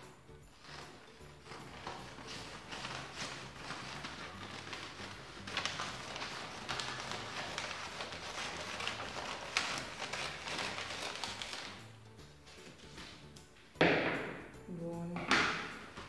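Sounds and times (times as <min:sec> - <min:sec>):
scissors cutting paper: 0:00.6 - 0:11.8
paper rustling and crackling: 0:00.6 - 0:13.3.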